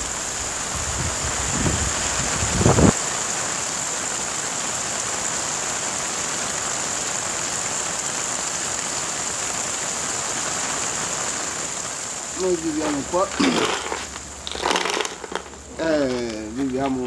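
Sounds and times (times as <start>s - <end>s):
heavy rain pouring: 0.0s - 17.0s.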